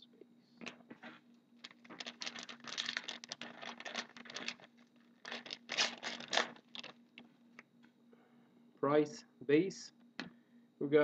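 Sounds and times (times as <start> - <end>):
wrapper crinkling and tearing: 1.6 - 7.0.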